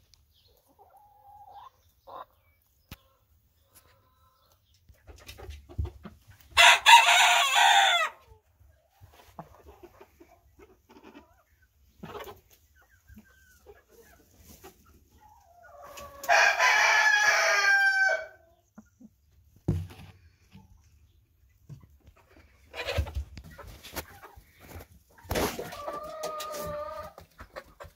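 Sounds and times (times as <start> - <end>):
hens clucking softly: 0.4 - 6.6, 8.2 - 16.4, 18.4 - 27.9
rooster crowing: 6.6 - 8.2, 16.3 - 18.4.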